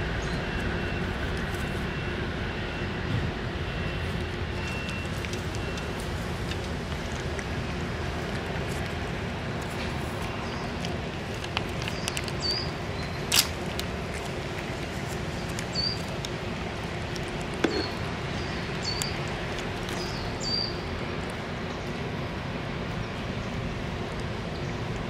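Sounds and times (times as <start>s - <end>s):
steady background noise: 0.0s - 25.0s
cat chewing and licking: 3.9s - 22.1s.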